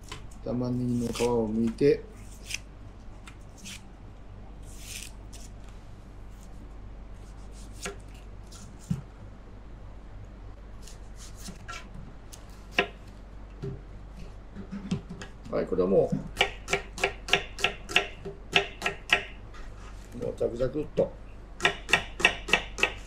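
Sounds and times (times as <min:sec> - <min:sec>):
faint low hum: 0:00.0 - 0:17.4
knife scraping onion skin: 0:00.8 - 0:01.5, 0:02.2 - 0:02.7, 0:03.6 - 0:03.8, 0:04.6 - 0:05.5, 0:07.2 - 0:08.9, 0:10.8 - 0:12.5.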